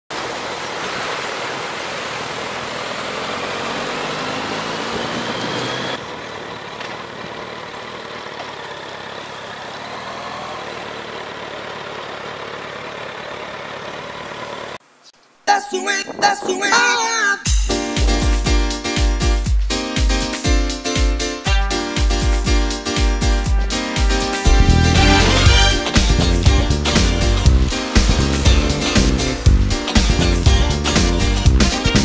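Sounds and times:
motorcycle engine accelerating: 2.1s - 14.8s, 24.0s - 32.0s.

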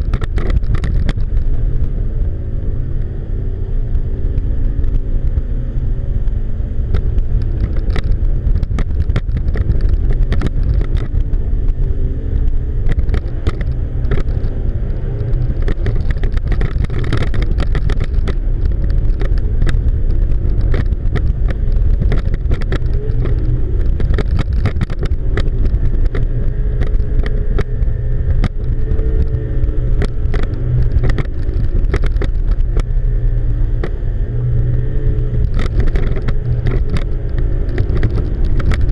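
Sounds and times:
outboard motors running under load: 0.0s - 38.9s.

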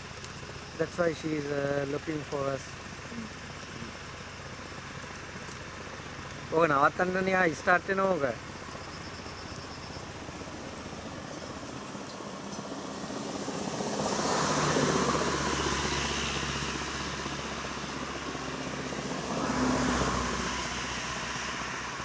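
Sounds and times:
traffic engine hum: 0.0s - 22.0s
vehicle passing: 12.6s - 22.0s.

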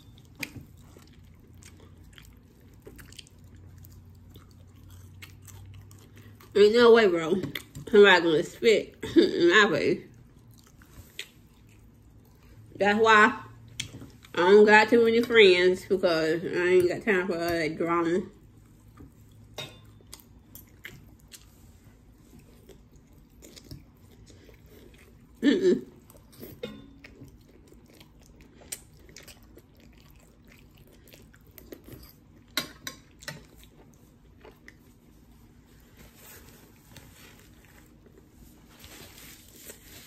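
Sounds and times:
biting and chewing: 0.1s - 6.6s, 18.7s - 35.1s
paper napkin rustle: 35.7s - 40.0s.

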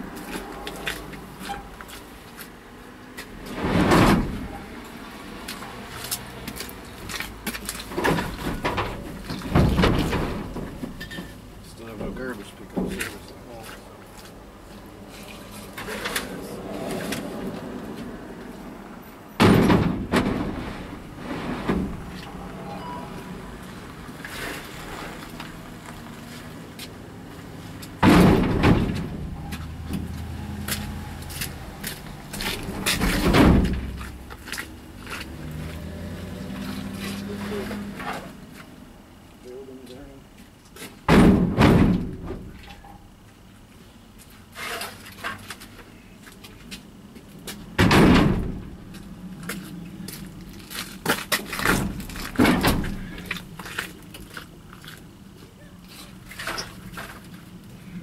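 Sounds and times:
wooden pallet crashing: 3.5s - 4.5s, 7.9s - 11.1s, 19.4s - 22.3s, 28.0s - 29.4s, 32.4s - 34.1s, 41.0s - 42.6s, 47.8s - 48.9s, 51.2s - 53.4s.

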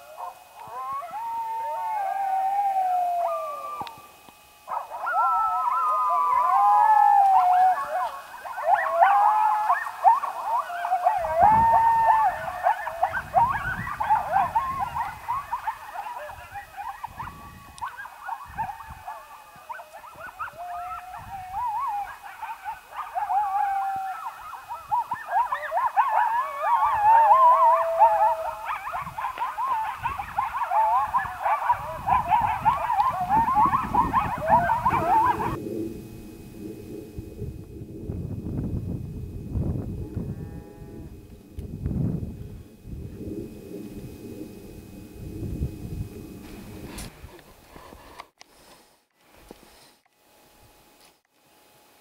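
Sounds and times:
coyotes howling and yipping: 0.0s - 37.8s.

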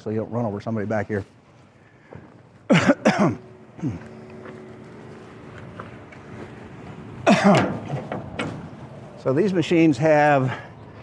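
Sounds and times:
faint steady hum: 0.1s - 11.0s
man clearing his throat: 2.7s - 4.1s, 7.2s - 7.8s.

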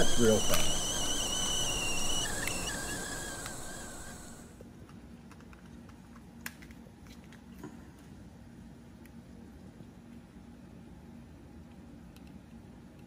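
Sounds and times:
faint wavering whistle: 0.0s - 4.4s
boiling pot hissing: 0.0s - 4.5s.

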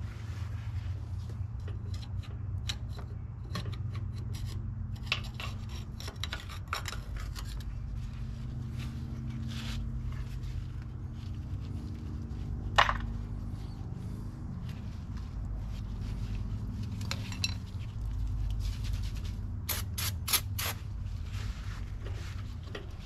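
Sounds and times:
steady low hum: 0.0s - 23.0s
metal scraper scraping steel: 1.6s - 7.8s.

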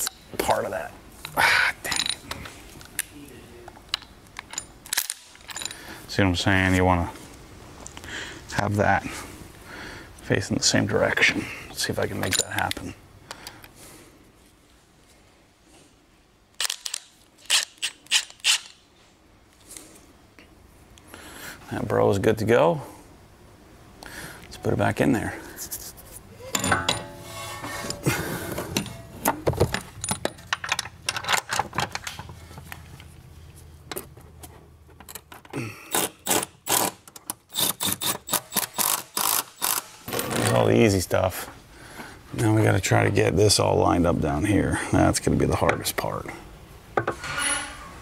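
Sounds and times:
faint clicks of parts handled: 1.2s - 5.9s, 12.2s - 13.8s, 27.9s - 35.6s.

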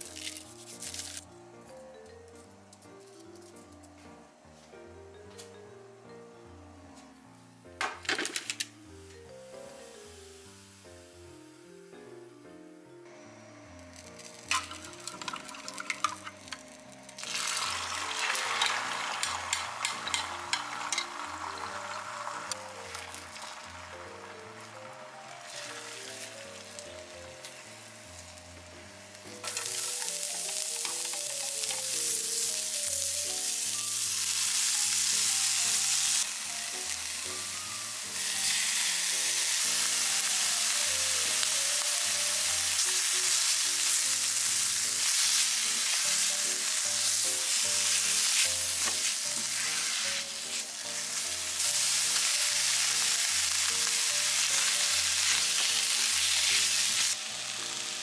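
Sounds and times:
light background music: 0.0s - 58.0s
food sizzling in frying pan: 8.0s - 11.3s, 13.7s - 58.0s
spatula stirring: 17.7s - 21.2s.

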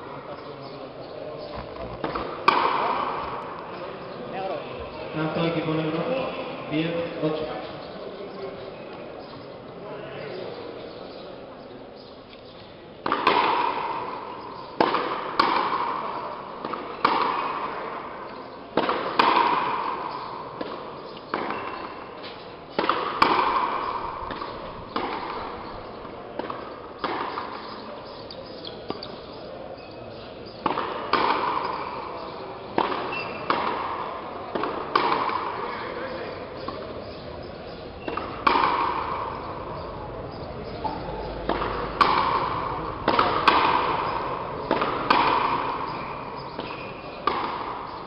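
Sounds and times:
ball struck by rackets: 1.4s - 3.8s, 13.0s - 29.2s, 30.4s - 48.0s.

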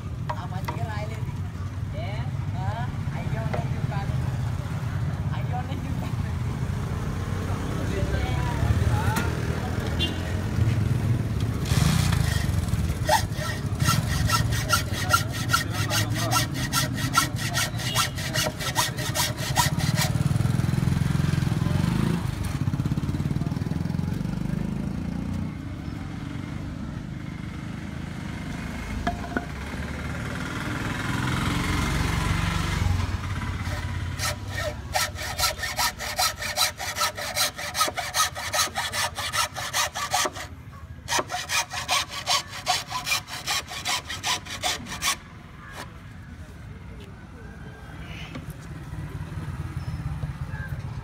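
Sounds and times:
hacksaw cutting bamboo: 11.6s - 20.4s, 33.3s - 45.9s.

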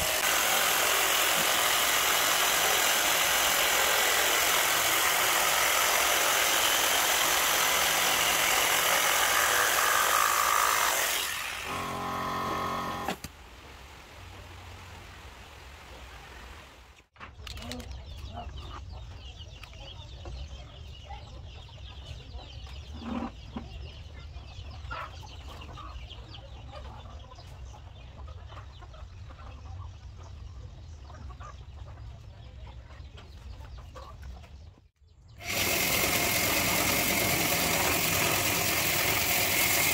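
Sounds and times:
electric jigsaw cutting plywood: 0.0s - 13.2s, 35.4s - 39.9s
chickens clucking: 17.6s - 34.8s.

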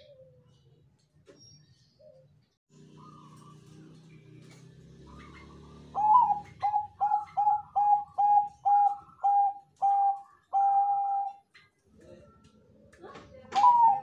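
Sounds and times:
dove cooing: 2.8s - 3.9s, 5.0s - 11.5s, 13.6s - 14.0s.

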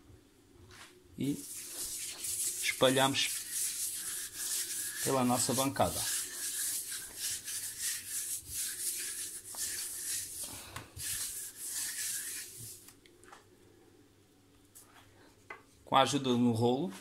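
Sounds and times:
hand rubbing oil on countertop: 1.2s - 13.0s.

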